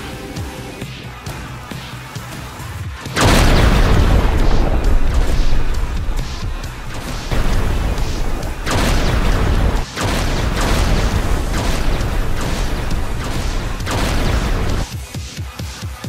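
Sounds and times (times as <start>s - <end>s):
thunder-like booming crashes: 3.2s - 14.9s.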